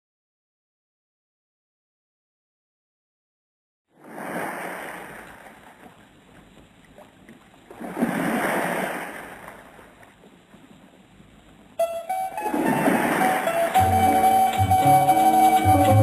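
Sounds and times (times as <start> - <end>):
ocean waves breaking: 4.0 - 16.0.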